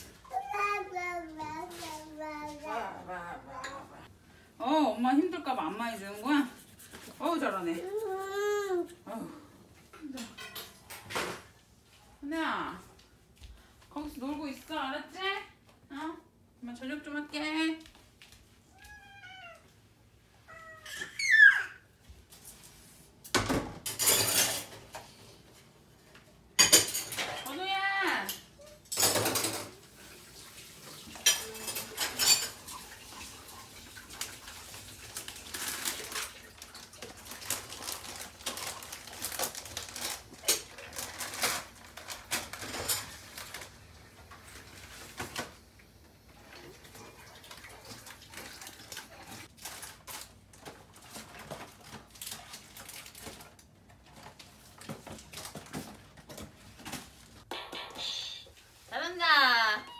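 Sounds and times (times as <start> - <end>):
dishes and cutlery clattering: 10.2 - 11.5, 23.4 - 25.1, 26.6 - 27.6, 28.2 - 29.8, 31.0 - 33.8, 40.0 - 43.7.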